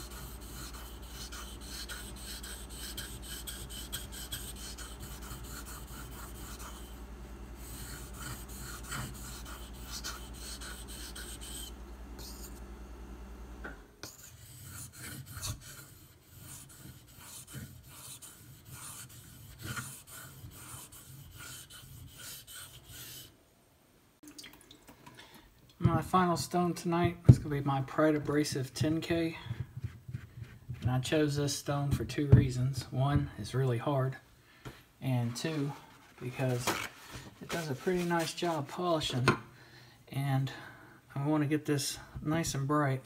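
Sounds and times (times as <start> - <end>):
knife blade rasping on whetstone: 0.0 - 7.0, 7.6 - 12.5, 14.0 - 23.3
steady low hum: 0.0 - 23.3.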